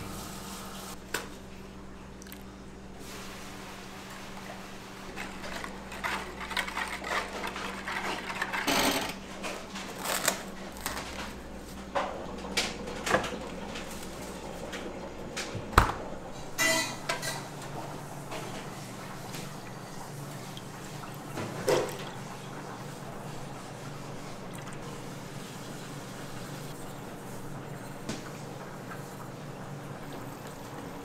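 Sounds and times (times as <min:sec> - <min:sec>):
utensils tapping and scraping: 0:05.2 - 0:11.3.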